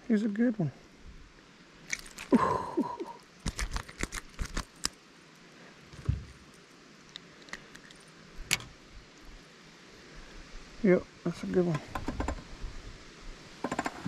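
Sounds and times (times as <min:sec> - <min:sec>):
low thump: 0:06.0 - 0:06.4.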